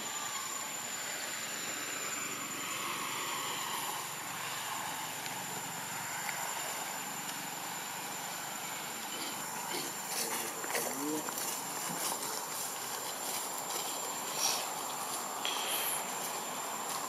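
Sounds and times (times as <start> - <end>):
thin high whine: 0.0 - 10.6
distant engine-like drone: 0.0 - 17.0.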